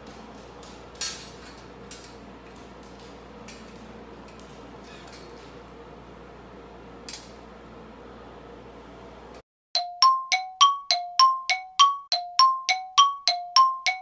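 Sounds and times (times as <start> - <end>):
two-pitch ringing chime dings: 9.8 - 14.0.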